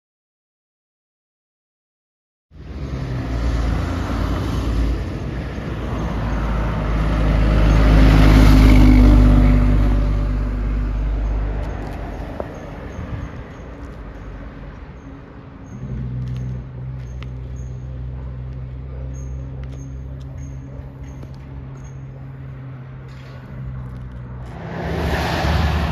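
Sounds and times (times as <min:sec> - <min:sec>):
truck diesel engine passing: 0:02.6 - 0:12.4, 0:21.0 - 0:25.9
steady engine hum: 0:14.0 - 0:25.9.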